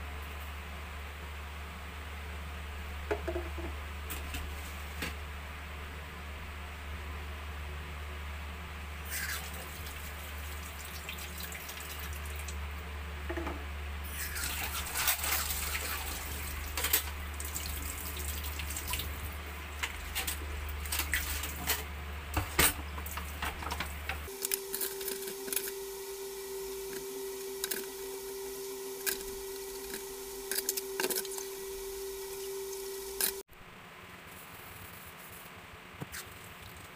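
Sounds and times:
water splashing and dripping: 14.4 - 20.0
low hum: 18.8 - 33.5
higher hum: 24.2 - 33.4.

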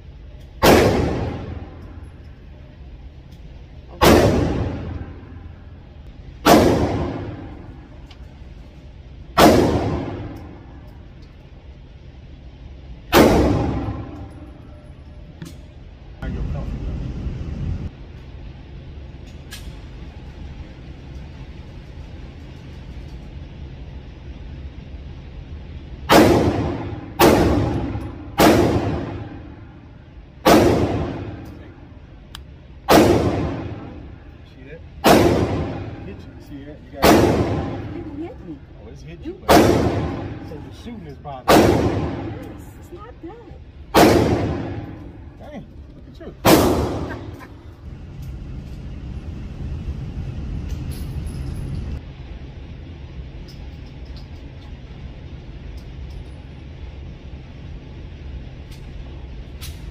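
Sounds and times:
low background rumble: 0.0 - 59.9
pistol shots echoing indoors: 0.4 - 2.3, 3.9 - 5.6, 6.3 - 8.1, 9.3 - 11.4, 13.0 - 14.7, 26.0 - 31.9, 32.8 - 34.4, 35.0 - 36.3, 37.0 - 38.1, 39.5 - 40.8, 41.4 - 42.8, 43.9 - 45.4, 46.4 - 47.5.

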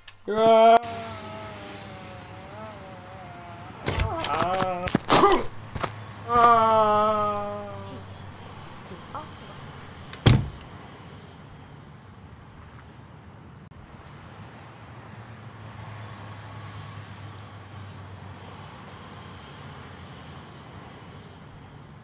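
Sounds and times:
low outdoor rumble: 0.0 - 22.0
door slamming: 3.8 - 4.4, 10.1 - 10.6.

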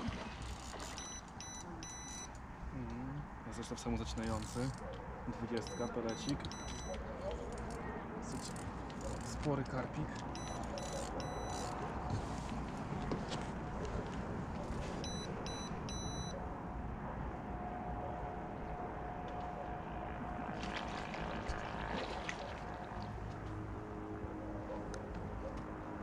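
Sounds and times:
high electronic beeps: 1.0 - 2.3, 5.6 - 7.0, 10.4 - 11.6, 15.0 - 16.3.

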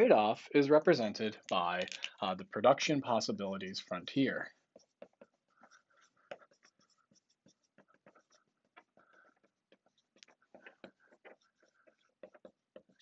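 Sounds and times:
marker squeaking on whiteboard: 4.2 - 13.0.

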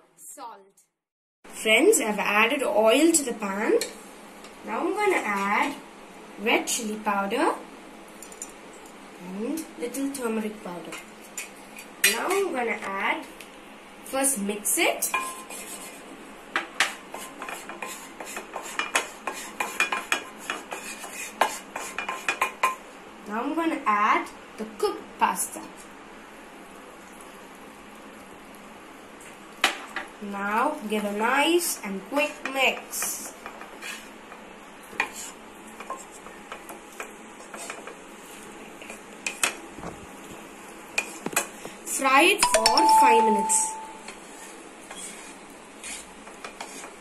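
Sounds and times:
spatula scraping frying pan: 15.0 - 22.8, 32.3 - 39.6, 44.2 - 47.0.

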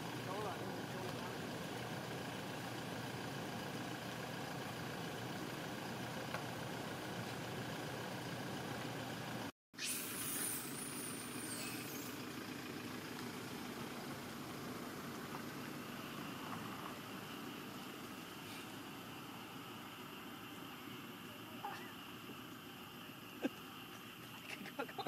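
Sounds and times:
vehicle engine idling: 0.0 - 9.5, 10.6 - 25.0
faint high squeal: 9.8 - 12.2.

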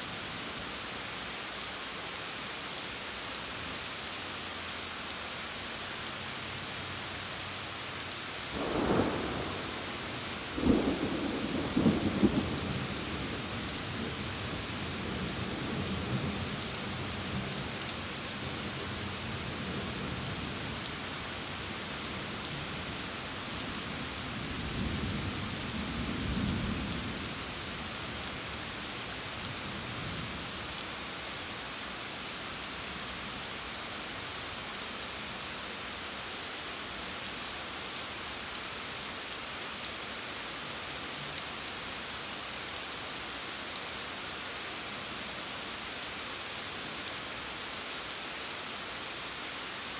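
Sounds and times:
steady rain: 0.0 - 49.9
thunder rumbling: 8.6 - 13.5.

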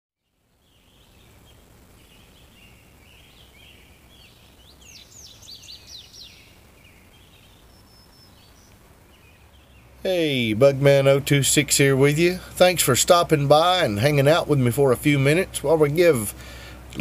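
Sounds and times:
birds chirping and singing: 0.3 - 12.5.

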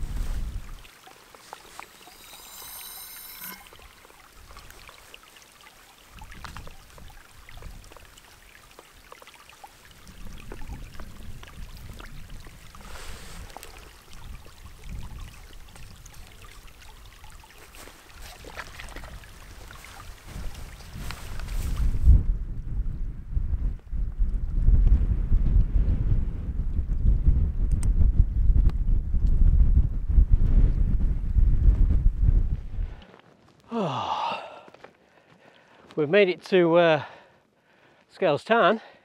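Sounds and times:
wind rumble on microphone: 0.0 - 0.9, 6.1 - 8.3, 9.9 - 33.0
stream running: 0.0 - 22.0
water trickling through filter: 0.2 - 21.5
high squeak: 1.8 - 4.2.

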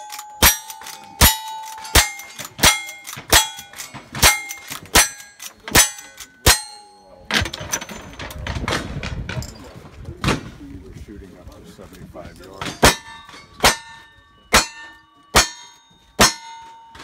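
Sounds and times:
steel target ringing: 0.0 - 8.1, 12.7 - 17.0.

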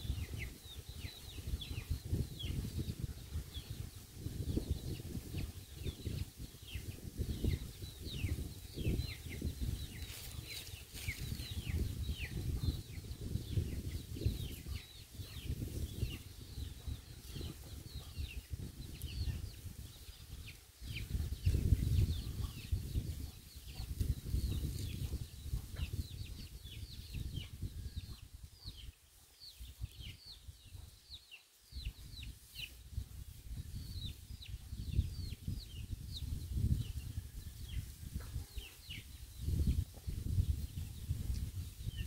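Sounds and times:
birds chirping: 0.0 - 42.0
wind rumble on microphone: 0.0 - 42.0.

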